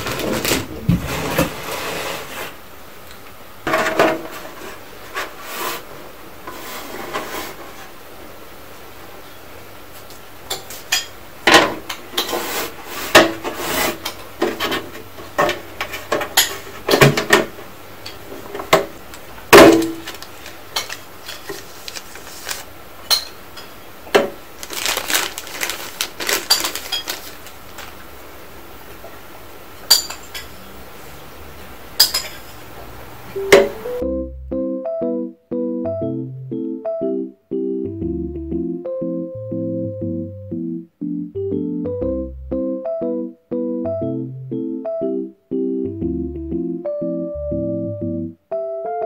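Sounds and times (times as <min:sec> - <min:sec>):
plastic rustling and scraping: 0:00.0 - 0:02.6, 0:03.9 - 0:07.9, 0:19.1 - 0:22.7, 0:24.6 - 0:28.0.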